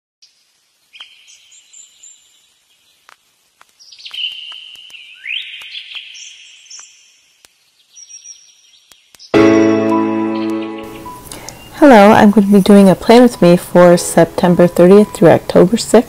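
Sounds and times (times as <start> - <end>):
birds chirping: 3.7 - 16.0.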